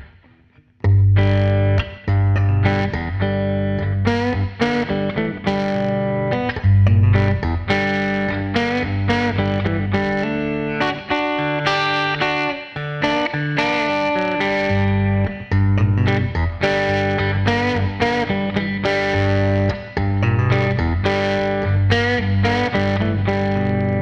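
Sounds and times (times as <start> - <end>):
guitar chords and notes ringing: 0.0 - 24.0.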